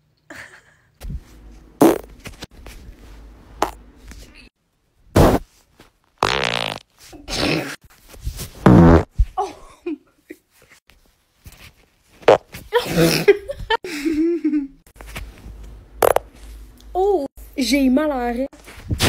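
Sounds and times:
human farts: 1.8s - 2.1s, 5.2s - 5.4s, 6.2s - 7.8s, 8.6s - 9.1s, 12.2s - 13.2s, 16.0s - 16.2s.

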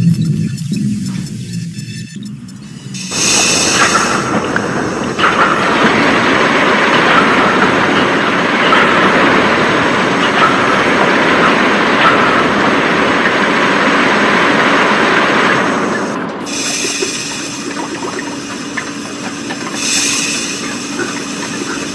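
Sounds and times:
machinery running: 0.0s - 21.9s.

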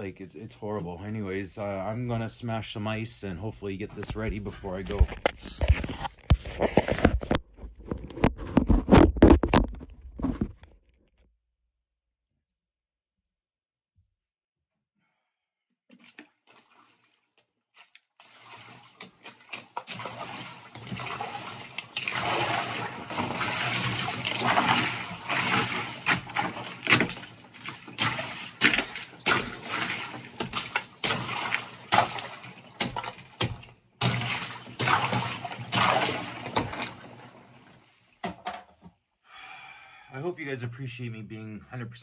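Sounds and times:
icy water sloshing: 15.9s - 38.2s.

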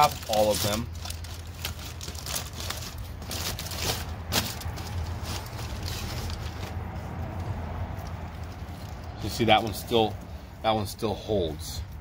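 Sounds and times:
aluminium foil crinkling: 0.0s - 6.8s.

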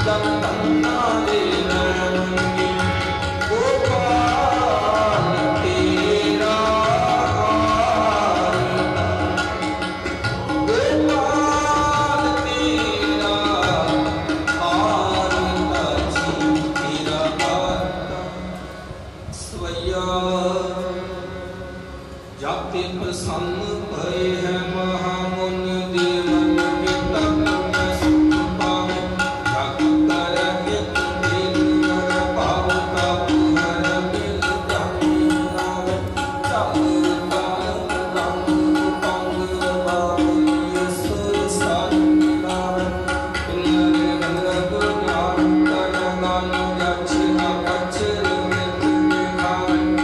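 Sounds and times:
tabla strokes: 0.0s - 20.0s, 25.3s - 50.0s
harmonium tones: 0.0s - 50.0s
man singing a hymn: 3.5s - 9.0s, 22.4s - 42.9s, 43.5s - 50.0s.

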